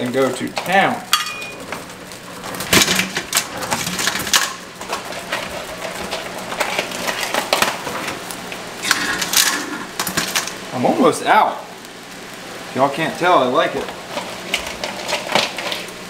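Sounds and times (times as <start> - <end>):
crab shells clicking and knocking: 1.5 - 10.6.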